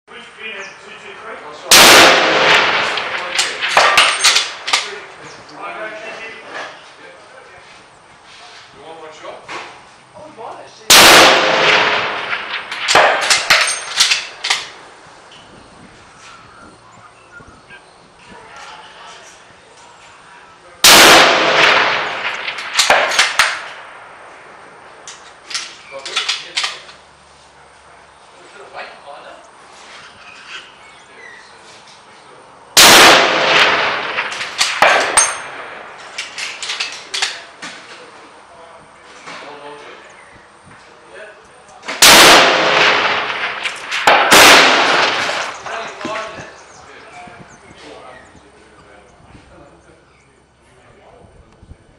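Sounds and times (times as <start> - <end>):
rifle shot: 1.7 - 5.0, 10.9 - 14.8, 20.8 - 24.4, 32.8 - 36.9, 41.9 - 46.3
sharp cracks and clanks: 1.7 - 5.6, 10.9 - 15.5, 20.8 - 27.1, 32.8 - 38.1, 41.4 - 46.7.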